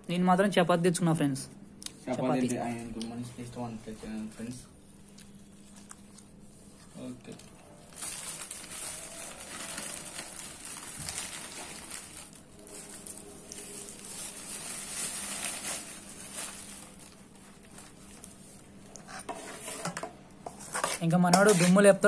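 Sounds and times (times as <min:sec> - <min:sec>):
newspaper rustling and crinkling: 0:07.0 - 0:18.7.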